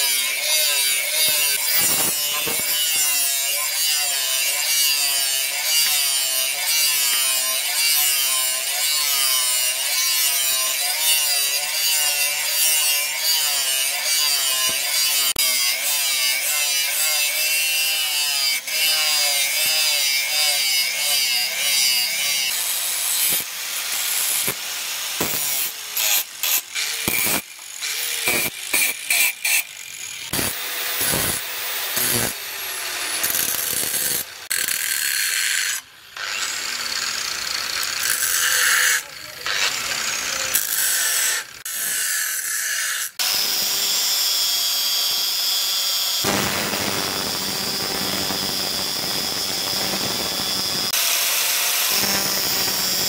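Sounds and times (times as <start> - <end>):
angle grinder grinding steel: 0.0 - 53.0.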